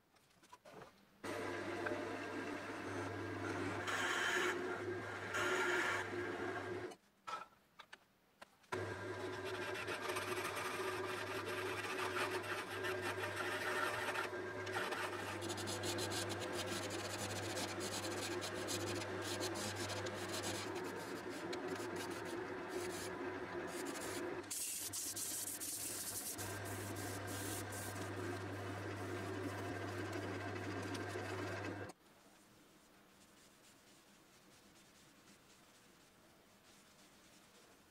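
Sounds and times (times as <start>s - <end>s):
wood lathe motor hum: 1.3s - 6.9s, 8.8s - 24.5s, 26.1s - 31.9s
scraper cutting spinning wood: 8.8s - 31.9s
hand sanding turning wood: 9.5s - 23.1s.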